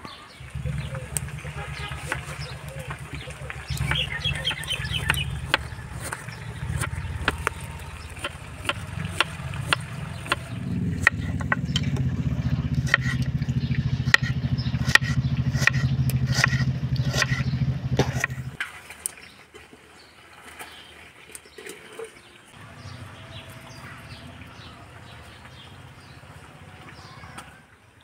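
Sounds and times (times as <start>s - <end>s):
low engine-like drone: 0.2s - 18.6s, 22.6s - 27.3s
knife chopping on wooden board: 3.6s - 11.9s, 12.8s - 13.2s, 14.0s - 17.4s, 18.0s - 18.4s.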